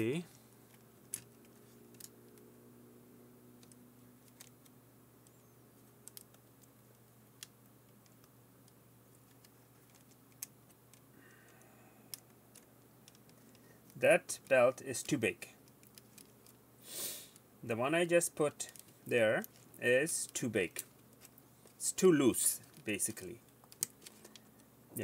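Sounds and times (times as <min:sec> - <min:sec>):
low steady hum: 0:00.0 - 0:25.0
fingers clicking plastic mechanism: 0:05.2 - 0:14.0.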